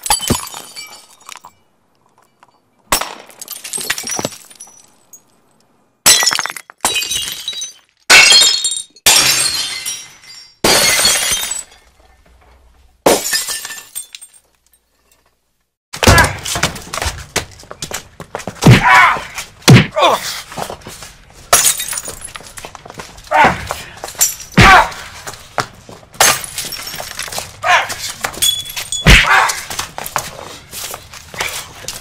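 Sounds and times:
breaking and shattering: 0:06.0 - 0:11.9, 0:21.5 - 0:22.6, 0:26.2 - 0:29.9
hits and thuds: 0:16.0 - 0:17.6, 0:18.5 - 0:20.0.

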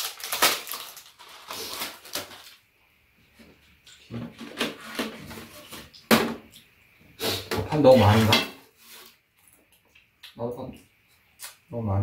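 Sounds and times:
plastic packet rustling: 0:00.0 - 0:02.7.

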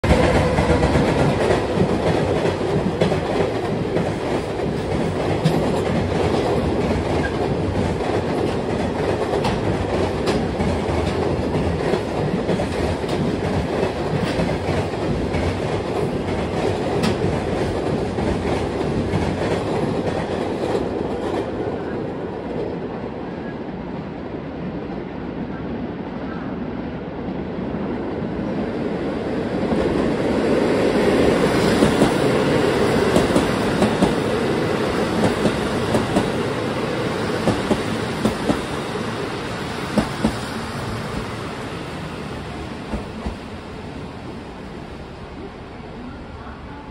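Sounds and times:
freight train rumbling past: 0:00.0 - 0:46.9
wheels clacking over rail joints: 0:31.5 - 0:39.0.

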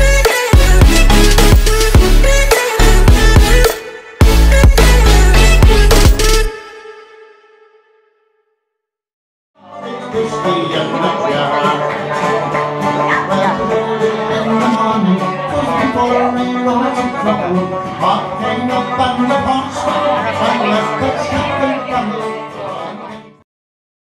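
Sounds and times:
guitar: 0:00.0 - 0:06.9, 0:09.6 - 0:23.4
banjo: 0:09.7 - 0:23.4.

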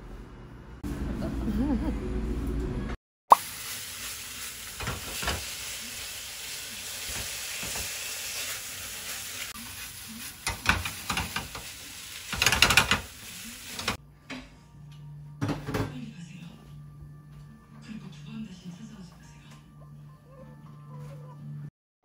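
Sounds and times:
eggs sizzling in a frying pan: 0:03.3 - 0:14.0.

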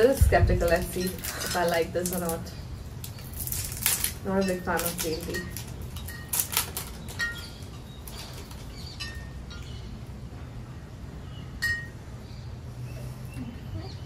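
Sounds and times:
plastic wrapper crinkling: 0:00.0 - 0:09.0.

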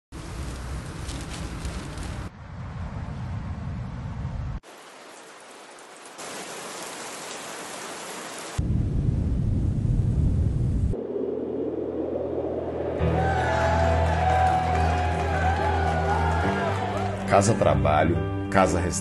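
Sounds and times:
deep rumble: 0:08.6 - 0:15.5.

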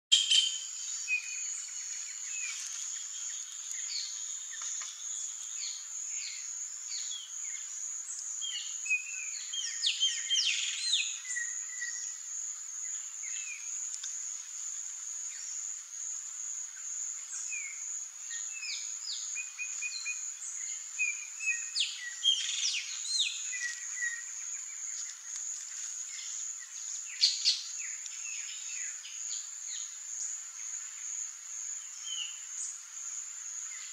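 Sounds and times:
bird chirps: 0:00.1 - 0:02.6.

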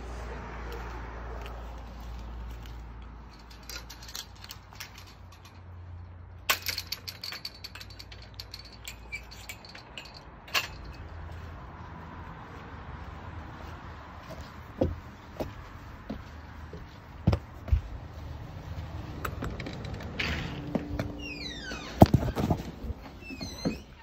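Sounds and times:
sharp clicks and rattles: 0:01.4 - 0:11.1, 0:19.0 - 0:22.8.

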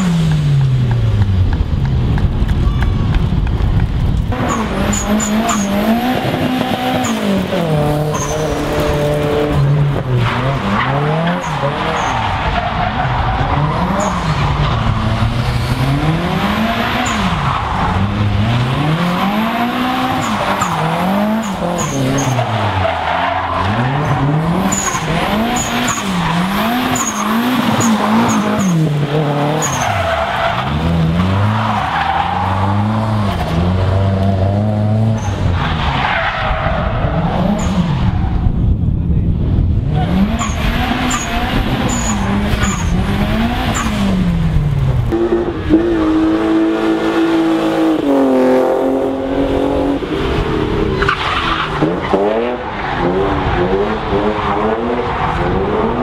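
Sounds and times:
car engine revving: 0:00.0 - 0:38.8, 0:39.4 - 0:56.0
tyre squeal and skidding: 0:04.4 - 0:33.6, 0:35.1 - 0:38.4, 0:40.0 - 0:44.2, 0:50.2 - 0:56.0.

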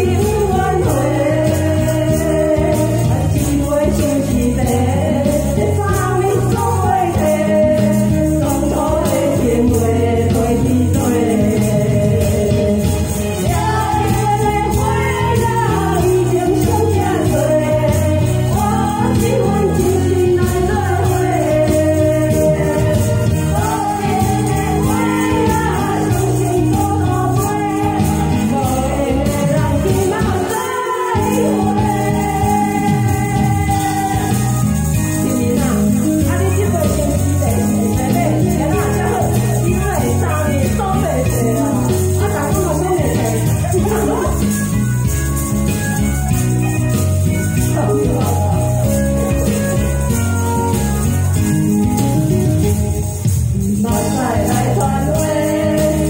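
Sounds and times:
women singing a duet: 0:00.0 - 0:44.6, 0:47.4 - 0:49.6, 0:53.6 - 0:56.0
tambourines shaken: 0:00.0 - 0:56.0
backing track through speaker: 0:19.4 - 0:46.1.

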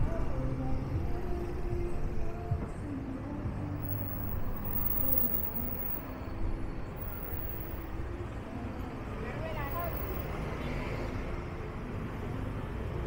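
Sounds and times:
traffic rumble: 0:03.8 - 0:13.0.

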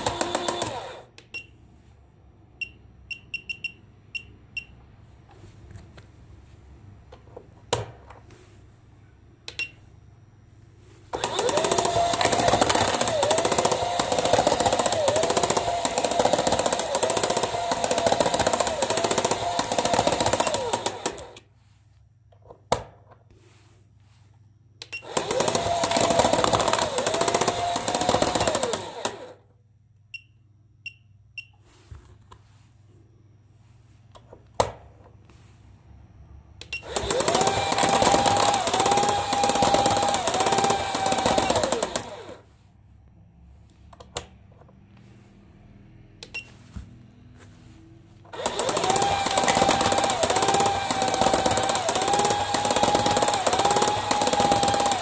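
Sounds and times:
toy motor and gears whining: 0:00.0 - 0:01.1, 0:11.1 - 0:21.4, 0:25.0 - 0:29.4, 0:36.8 - 0:42.4, 0:48.3 - 0:55.0
short beeps: 0:02.6 - 0:04.8, 0:30.1 - 0:31.6.

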